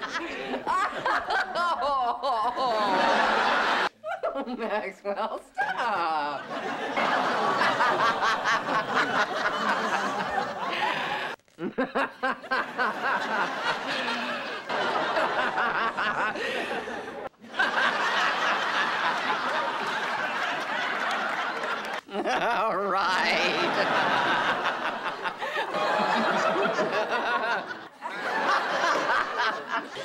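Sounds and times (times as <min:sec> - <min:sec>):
woman laughing: 0:00.0 - 0:03.0, 0:22.1 - 0:24.5.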